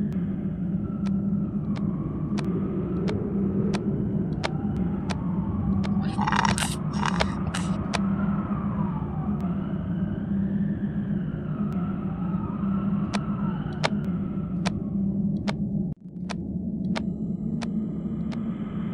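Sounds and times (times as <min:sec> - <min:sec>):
distant siren wailing: 0:00.0 - 0:18.9
sharp clicks: 0:01.0 - 0:05.2, 0:13.0 - 0:14.0.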